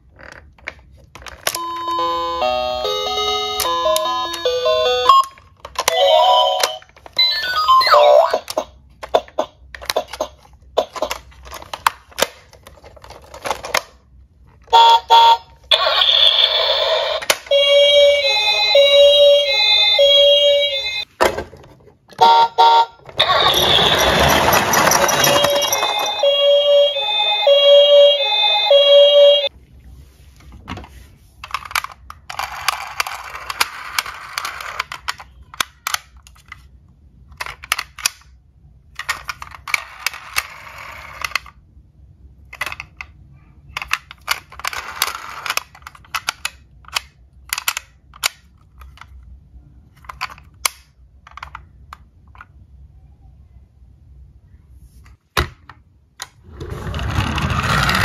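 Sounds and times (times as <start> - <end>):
toy ambulance siren: 1.5 - 8.6, 14.7 - 21.0, 22.2 - 29.5
sharp clicks of toy vehicles: 42.5 - 49.2.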